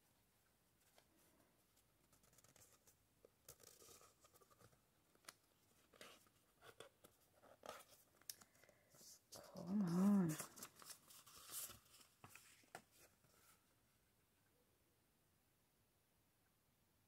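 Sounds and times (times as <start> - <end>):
paper rustling and sliding: 9.3 - 13.6
person humming: 9.5 - 10.5.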